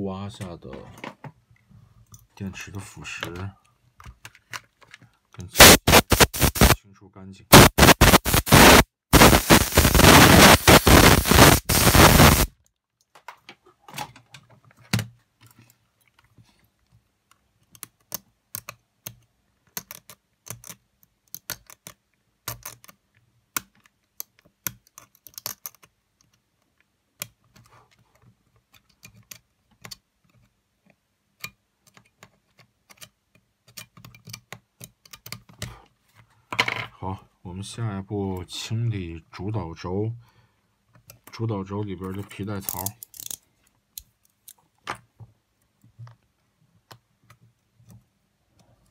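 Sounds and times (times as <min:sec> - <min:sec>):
electric tool hissing: 0:05.6 - 0:06.8, 0:07.5 - 0:12.5.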